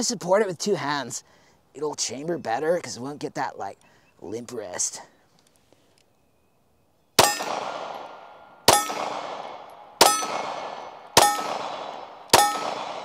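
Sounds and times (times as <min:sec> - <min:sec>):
pistol shots with ringing: 0:07.2 - 0:13.0.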